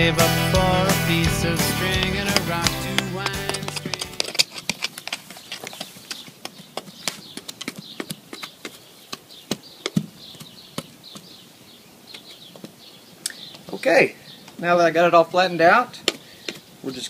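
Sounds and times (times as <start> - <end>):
garden hoe scraping soil: 0.2 - 11.4.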